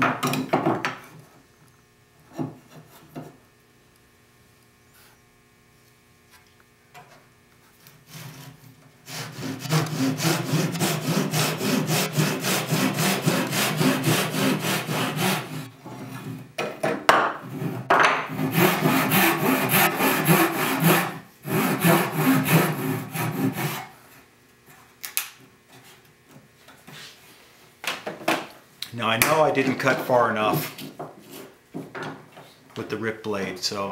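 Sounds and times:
hand saw cutting wood: 0:07.9 - 0:16.4, 0:17.4 - 0:24.0.

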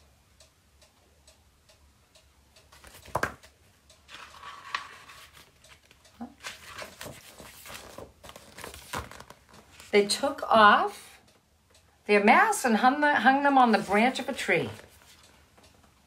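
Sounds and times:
clock ticking: 0:00.0 - 0:16.0
rustling crinkling handling noise: 0:04.1 - 0:10.0, 0:13.8 - 0:15.4.

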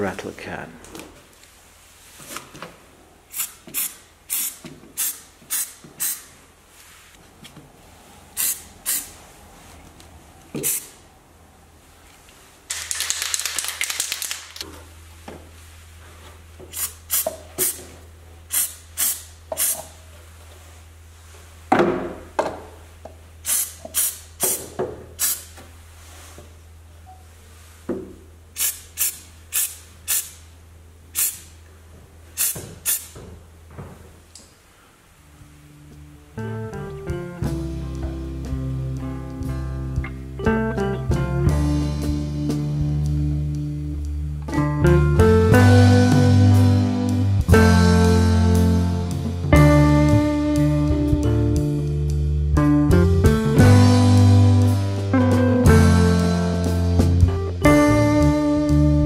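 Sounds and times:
aerosol can spraying: 0:03.3 - 0:06.3, 0:08.4 - 0:09.1, 0:10.6 - 0:10.9, 0:16.7 - 0:17.8, 0:18.5 - 0:19.9, 0:23.5 - 0:24.6, 0:28.6 - 0:30.4, 0:31.2 - 0:31.5, 0:32.4 - 0:33.1.

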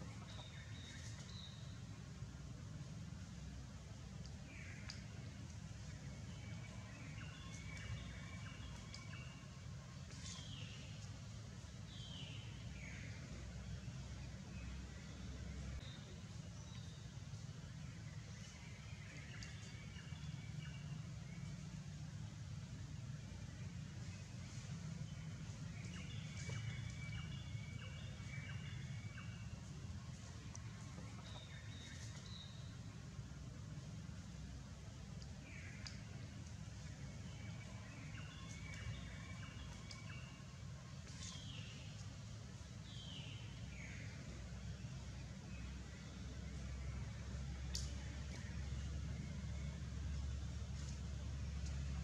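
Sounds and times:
light ticks and rustles: 0:00.0 - 0:14.7, 0:15.5 - 0:52.0
low steady rumble: 0:00.0 - 0:52.0
light ticks: 0:04.0 - 0:09.4, 0:18.4 - 0:20.8, 0:29.1 - 0:32.5, 0:34.9 - 0:40.4, 0:47.2 - 0:49.2, 0:50.1 - 0:52.0.

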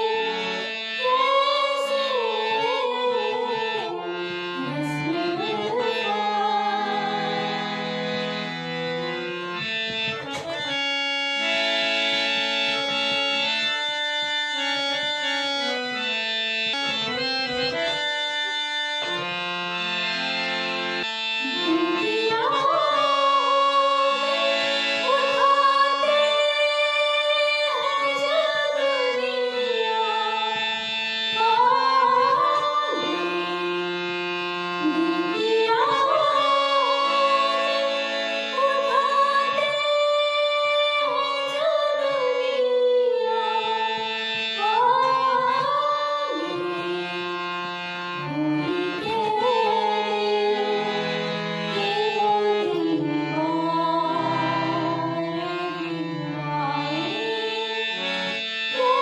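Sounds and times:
woman singing: 0:00.0 - 0:07.9, 0:21.4 - 0:30.7, 0:31.3 - 0:34.0, 0:34.8 - 0:47.3, 0:48.3 - 0:51.0, 0:51.7 - 0:58.0, 0:58.7 - 0:59.0
harmonium chords: 0:00.0 - 0:59.0.

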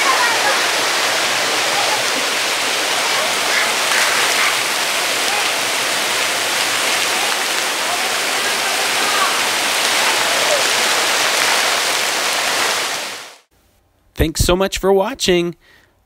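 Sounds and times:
faint voices: 0:00.0 - 0:12.8
rush of falling water: 0:00.0 - 0:13.5.

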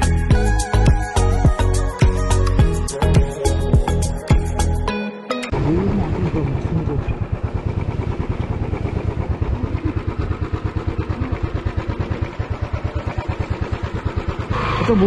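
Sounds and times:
motorcycle engine idling: 0:05.5 - 0:15.0.

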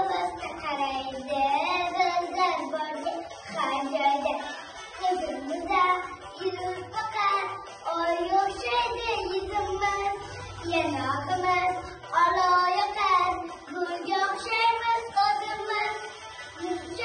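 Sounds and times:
girl singing: 0:00.0 - 0:17.0
musical backing track: 0:00.0 - 0:17.0.

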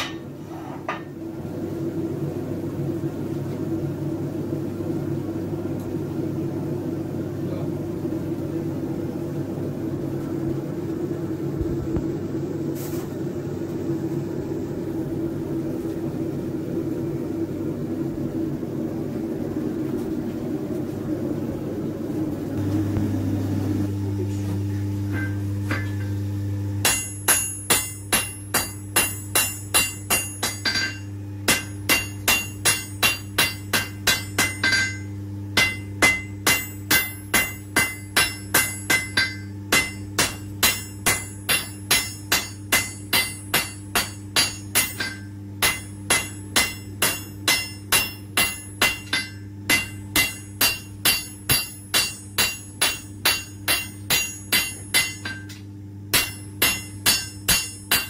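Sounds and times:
hammer striking steel on anvil: 0:00.0 - 0:00.3, 0:25.1 - 0:26.1, 0:26.8 - 0:58.0.

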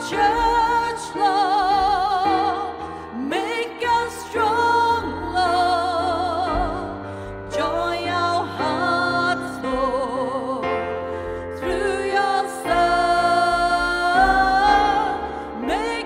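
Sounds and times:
electric keyboard chords: 0:00.0 - 0:16.0
two voices singing worship song: 0:00.0 - 0:16.0.

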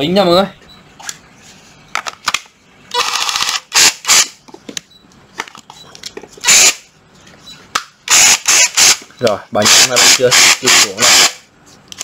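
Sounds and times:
cordless drill buzzing: 0:06.4 - 0:06.8, 0:08.1 - 0:09.0, 0:09.7 - 0:11.4.

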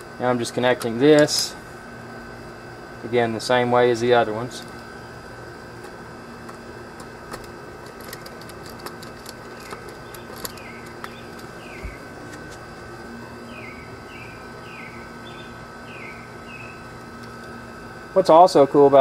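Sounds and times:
steady background hum: 0:00.0 - 0:19.0
bird chirping: 0:09.5 - 0:12.2, 0:13.4 - 0:16.9.

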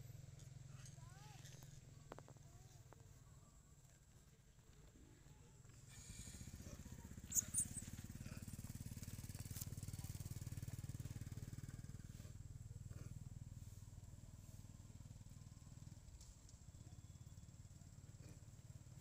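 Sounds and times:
low engine rumble: 0:00.0 - 0:19.0
high-pitched squeaks: 0:07.2 - 0:07.9.

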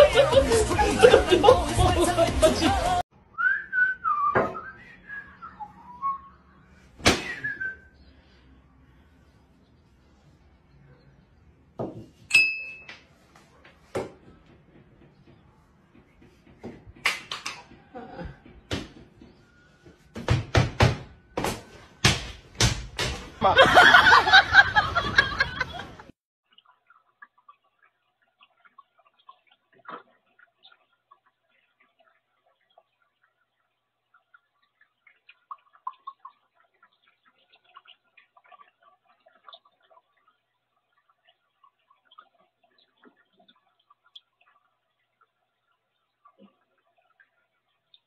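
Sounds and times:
person whistling: 0:03.4 - 0:06.3, 0:07.2 - 0:07.9.

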